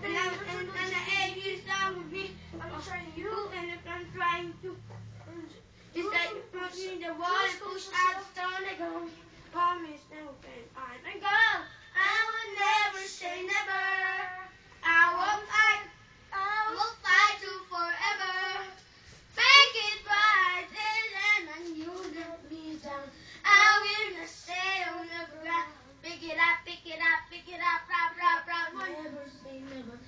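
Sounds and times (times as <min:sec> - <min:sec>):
boy singing into microphone: 0:00.0 - 0:18.8, 0:19.4 - 0:30.0.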